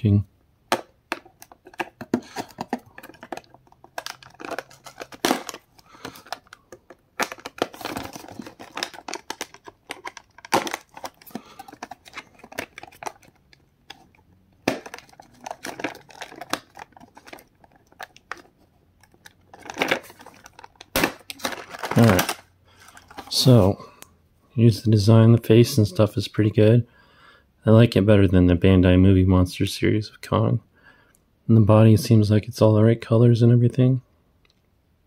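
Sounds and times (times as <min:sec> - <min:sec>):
plastic packaging crinkling: 0:01.1 - 0:23.5.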